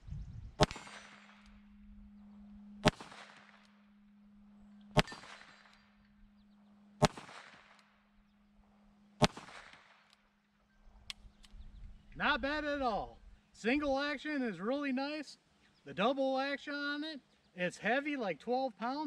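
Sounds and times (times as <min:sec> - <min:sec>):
revolver shots: 0:00.6 - 0:01.7, 0:02.7 - 0:03.8, 0:04.8 - 0:05.9, 0:07.0 - 0:07.8, 0:09.2 - 0:09.9.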